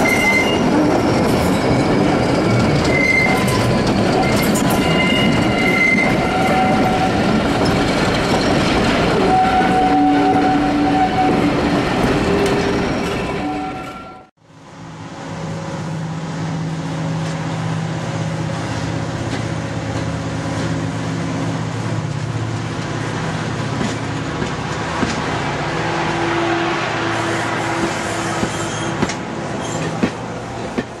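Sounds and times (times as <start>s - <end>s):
diesel locomotive engine drone: 14.2s - 31.0s.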